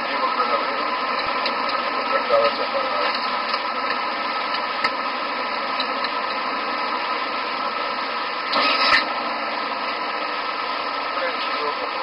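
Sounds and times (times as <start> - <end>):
cockpit airflow and engine hum: 0.0 - 12.0.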